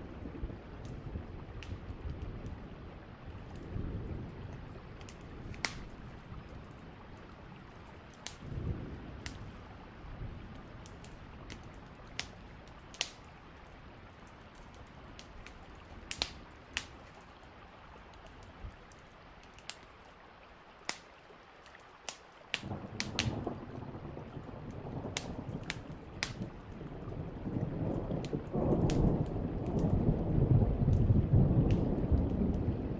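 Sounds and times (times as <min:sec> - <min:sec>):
steady rain hiss: 0:00.0 - 0:32.9
thunder rumbling: 0:08.3 - 0:11.5, 0:22.6 - 0:32.9.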